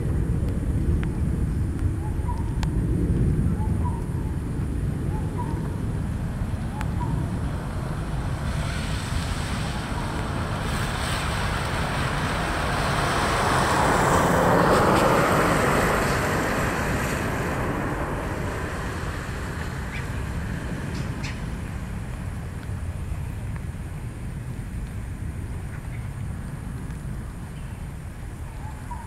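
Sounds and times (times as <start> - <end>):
distant traffic rumble: 0.0 - 29.0
vehicle passing: 5.7 - 23.3.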